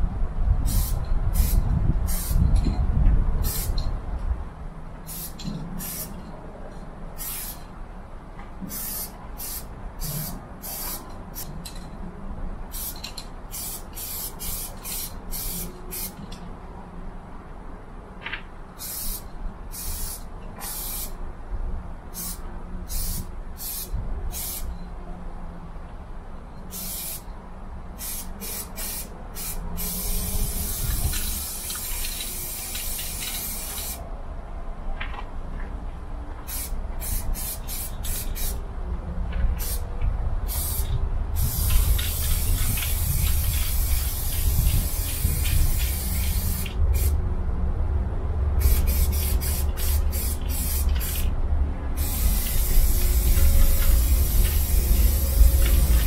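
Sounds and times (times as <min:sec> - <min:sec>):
spray can hissing: 0:00.7 - 0:02.4, 0:03.4 - 0:03.8, 0:05.1 - 0:06.1, 0:07.2 - 0:07.6, 0:08.7 - 0:11.5, 0:12.7 - 0:16.2, 0:18.8 - 0:21.2, 0:22.2 - 0:24.6, 0:26.7 - 0:27.2, 0:28.0 - 0:34.0, 0:36.5 - 0:38.6, 0:39.6 - 0:39.8, 0:40.5 - 0:47.1, 0:48.6 - 0:51.3, 0:52.0 - 0:56.0
low rumble: 0:52.8 - 0:56.0.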